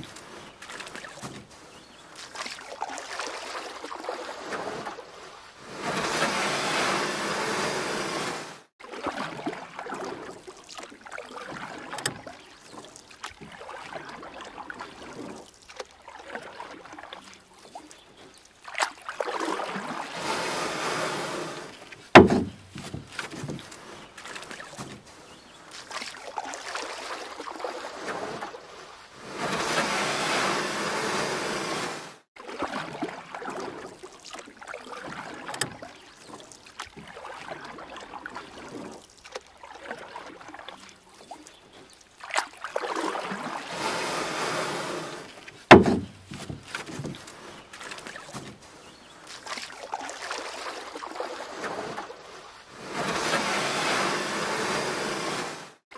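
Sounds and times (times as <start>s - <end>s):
paddle splashing water: 0.0s - 55.9s
water lapping: 0.0s - 55.9s
sharp knock: 22.2s - 22.6s, 45.7s - 46.2s.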